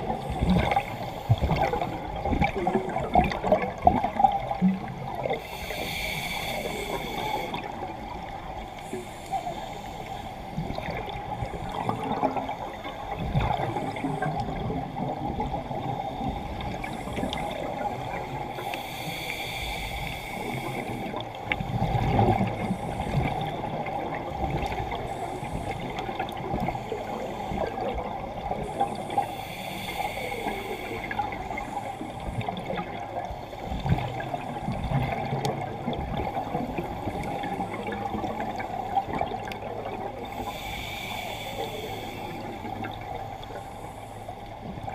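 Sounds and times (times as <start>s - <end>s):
bubbles gurgling underwater: 0.0s - 5.4s, 13.2s - 18.3s, 21.7s - 26.8s, 32.3s - 40.3s
muffled underwater hiss: 0.0s - 44.9s.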